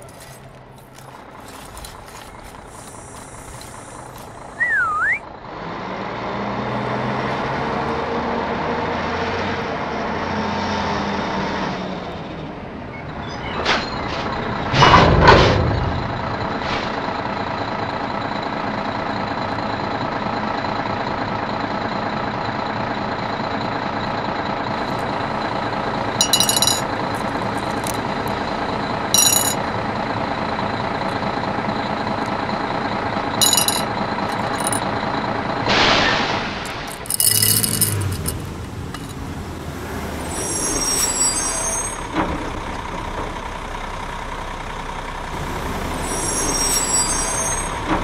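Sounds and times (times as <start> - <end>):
truck engine running: 0.0 - 10.3, 15.8 - 26.2, 26.8 - 40.5.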